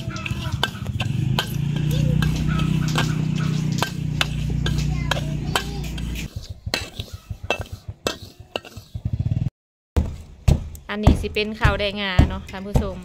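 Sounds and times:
metal spatula scraping a wok: 0:00.0 - 0:09.1.

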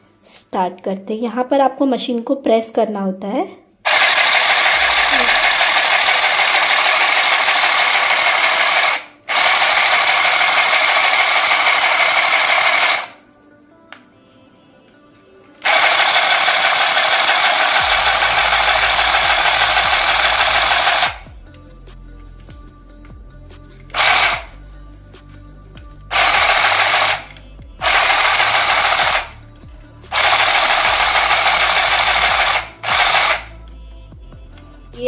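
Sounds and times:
mini sewing machine clattering: 0:03.9 - 0:13.2, 0:15.6 - 0:21.2, 0:24.0 - 0:24.5, 0:26.1 - 0:29.3, 0:30.2 - 0:33.5.

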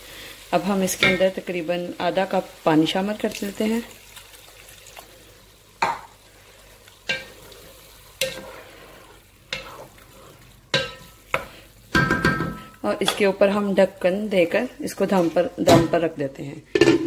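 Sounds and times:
low frying sizzle: 0:00.0 - 0:17.0
wooden spoon scraping a pot: 0:07.1 - 0:11.6.

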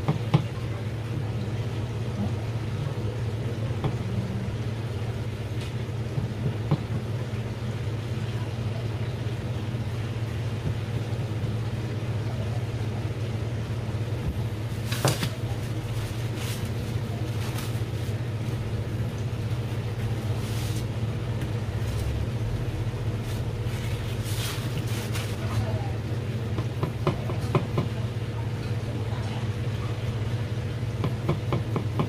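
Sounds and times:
low machine hum: 0:00.0 - 0:32.0
paper towel rustling: 0:14.6 - 0:22.3, 0:23.1 - 0:26.0.

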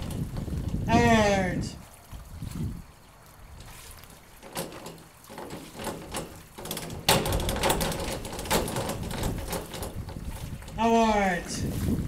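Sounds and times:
diving springboard knocking and rattling: 0:00.0 - 0:01.3, 0:03.4 - 0:11.0.

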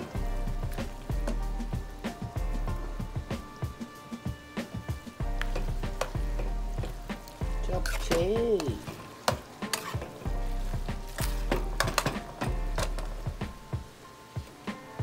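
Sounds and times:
food sizzling in a pan: 0:00.0 - 0:15.0
metal spoon scraping a pan: 0:07.8 - 0:08.2, 0:08.8 - 0:10.2.

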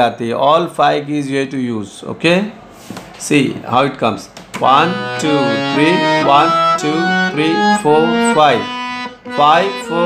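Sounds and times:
harmonium playing a scale: 0:04.6 - 0:10.0.

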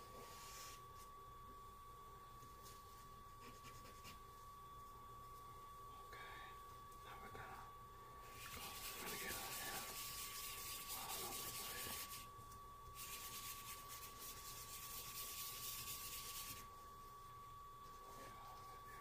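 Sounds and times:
fingers rubbing charcoal on paper: 0:08.3 - 0:12.3, 0:13.0 - 0:16.7.

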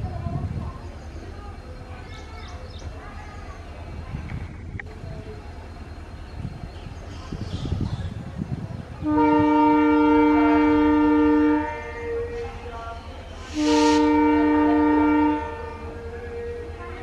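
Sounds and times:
train running rumble: 0:00.0 - 0:17.0
locomotive horn blasts: 0:09.0 - 0:12.7, 0:13.4 - 0:17.0.

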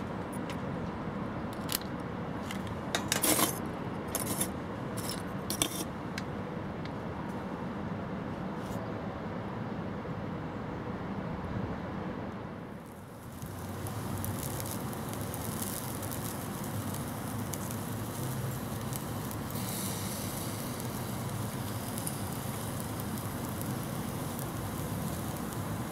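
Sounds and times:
zucchini sizzling on a grill: 0:12.8 - 0:25.9.

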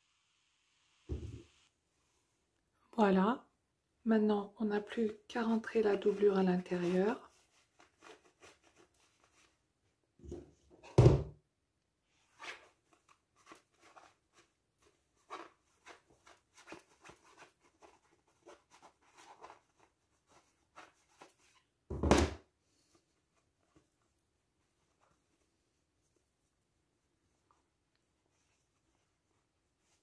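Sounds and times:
dull thumps: 0:01.1 - 0:01.5
fabric rustling: 0:05.0 - 0:09.6.

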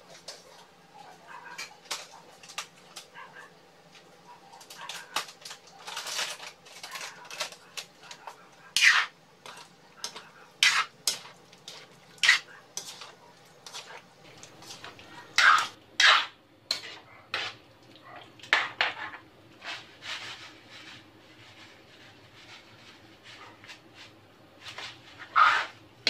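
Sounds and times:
metal spoon scraping a pan: 0:04.6 - 0:17.6, 0:18.5 - 0:25.8.

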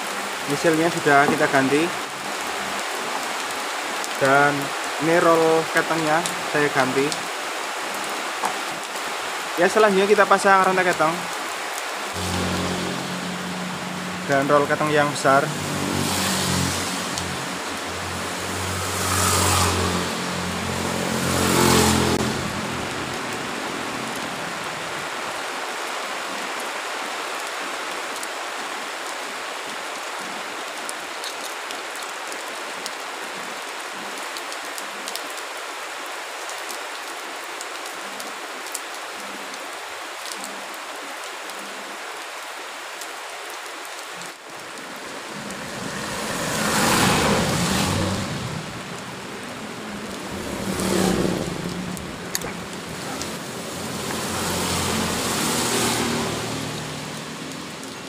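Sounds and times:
engine running: 0:12.2 - 0:14.9.

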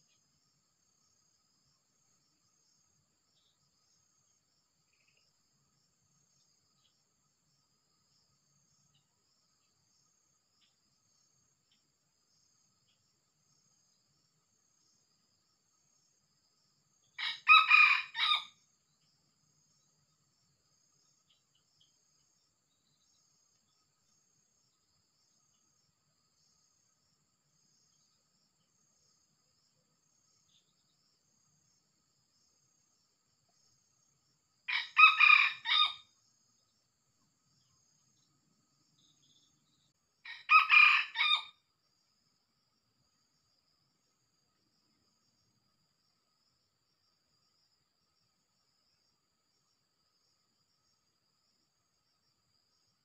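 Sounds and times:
insects chirring: 0:00.0 - 0:53.0
rooster crowing: 0:17.2 - 0:18.6, 0:34.7 - 0:36.1, 0:40.3 - 0:41.6.

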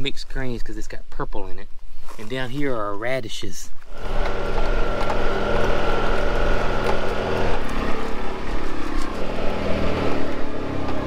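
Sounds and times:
utility vehicle engine running: 0:03.9 - 0:11.0.

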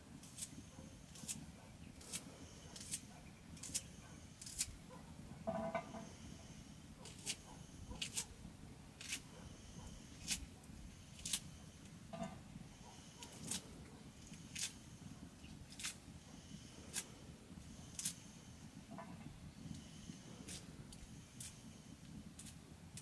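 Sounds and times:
knife snipping green onion: 0:02.8 - 0:03.0, 0:03.6 - 0:04.7, 0:08.0 - 0:08.2, 0:09.0 - 0:09.3, 0:15.7 - 0:16.0, 0:18.0 - 0:18.2.

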